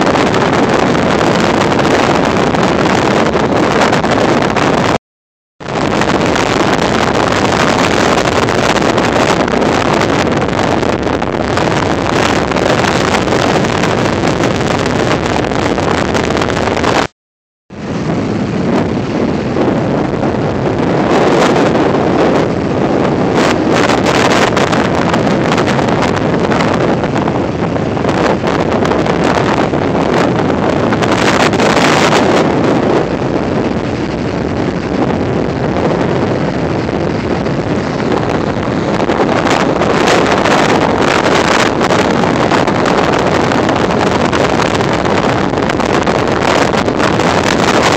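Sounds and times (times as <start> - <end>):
wind buffeting microphone: 0.0 - 5.0, 5.6 - 17.1, 17.7 - 47.9
ocean surf: 17.7 - 47.9.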